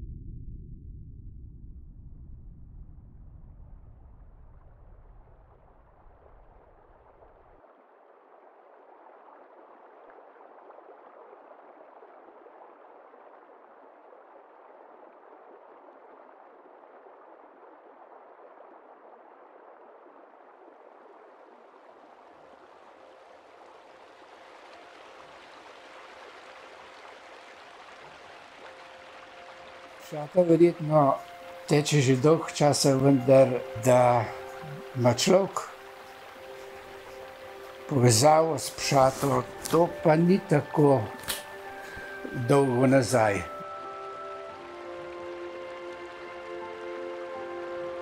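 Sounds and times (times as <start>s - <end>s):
low rumble: 0.0s - 7.6s
river water flowing: 6.8s - 48.0s.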